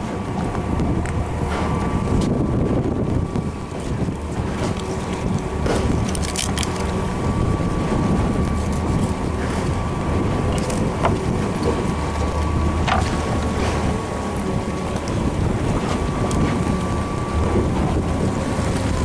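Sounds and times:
boat motor running: 0.0s - 19.0s
thin steady whine: 0.0s - 19.0s
wind buffeting microphone: 0.0s - 19.0s.

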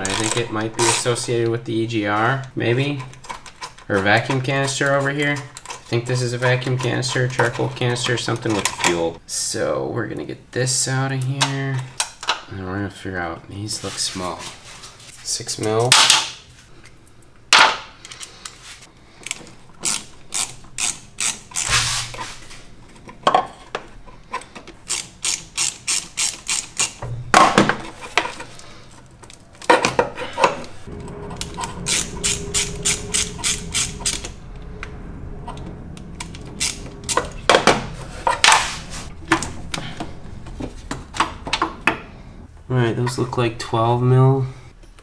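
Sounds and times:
socket ratchet clicking: 24.9s - 27.0s.

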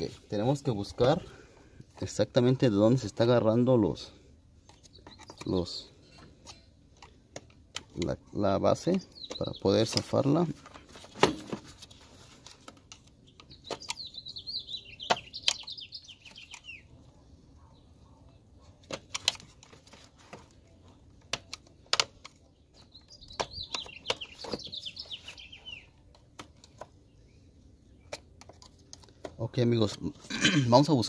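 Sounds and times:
bird singing quick chirps: 13.3s - 16.9s, 22.8s - 26.0s.

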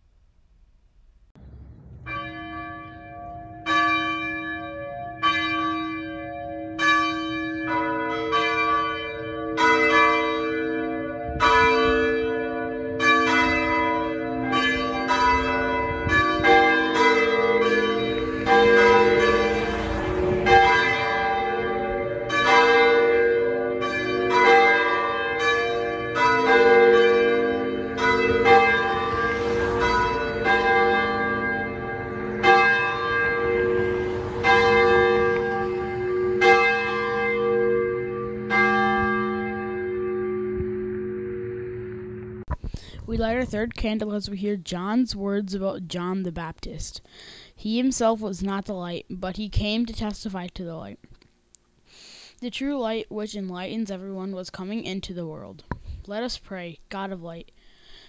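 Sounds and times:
church bells ringing: 2.0s - 42.5s.

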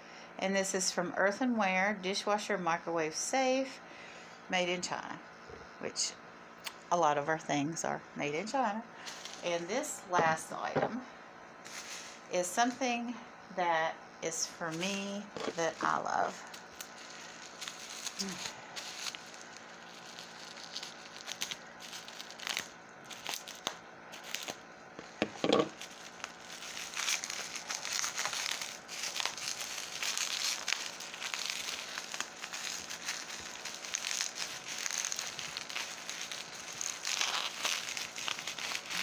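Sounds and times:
bubble wrap crinkling: 9.0s - 9.9s, 14.4s - 39.0s.

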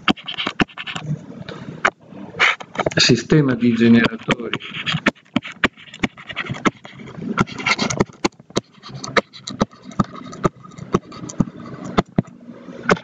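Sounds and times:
stylus tapping on tablet: 0.0s - 1.0s, 4.0s - 12.3s.

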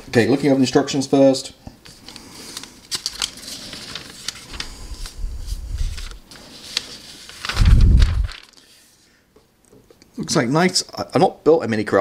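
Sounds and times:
paper rustling and crackling: 1.8s - 9.0s.

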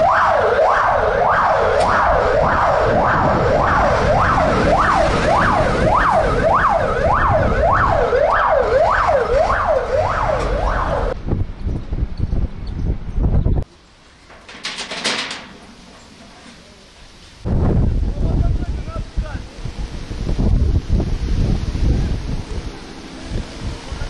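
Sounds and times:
fire engine siren wailing: 0.0s - 11.2s.

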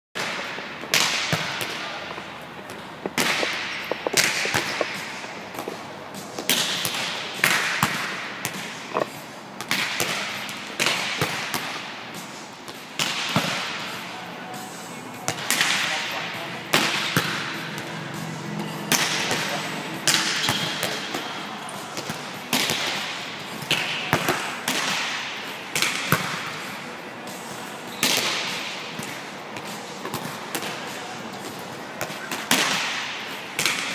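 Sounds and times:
slaps of hands on volleyball: 0.2s - 1.8s, 9.6s - 11.9s, 23.7s - 26.5s
balls bouncing on court floor: 0.2s - 13.9s, 15.2s - 16.1s, 16.7s - 26.6s, 27.9s - 33.9s.

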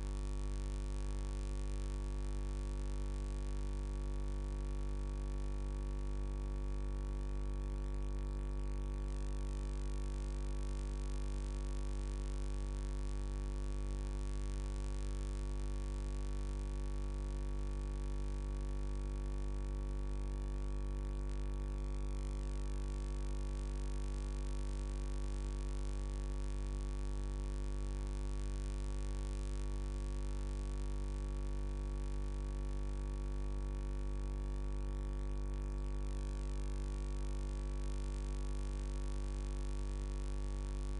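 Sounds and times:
electrical mains hum: 0.0s - 0.4s.

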